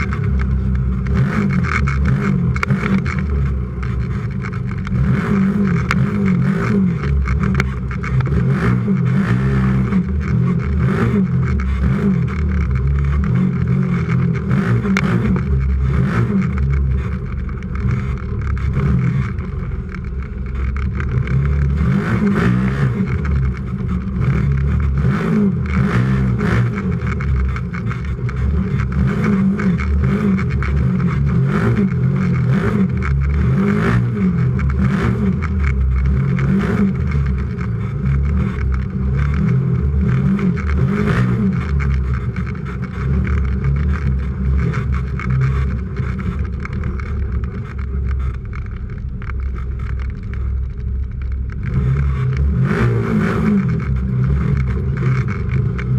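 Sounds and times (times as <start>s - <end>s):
engine revving up and down: 0.0s - 55.9s.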